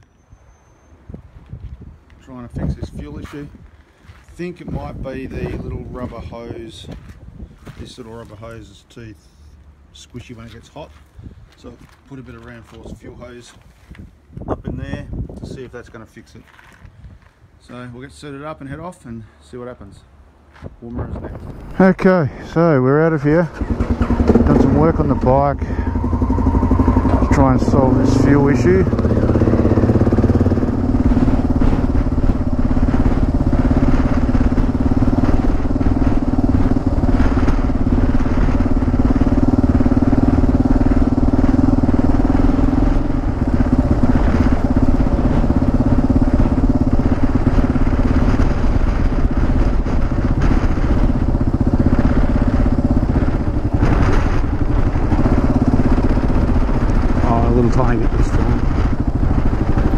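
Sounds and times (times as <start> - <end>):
motorcycle engine running: 22.5 - 59.9.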